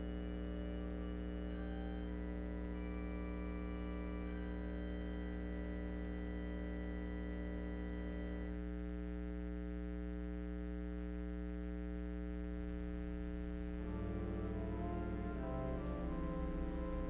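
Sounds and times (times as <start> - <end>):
keyboard chord held: 0.0 - 3.0, 13.8 - 17.0.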